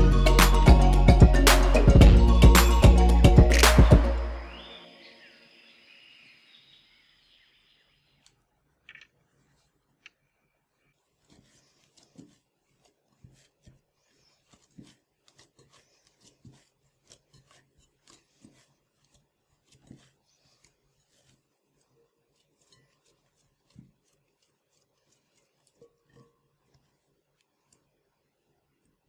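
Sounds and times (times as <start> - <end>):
hands kneading dough in bowl: 9.3 - 29.0.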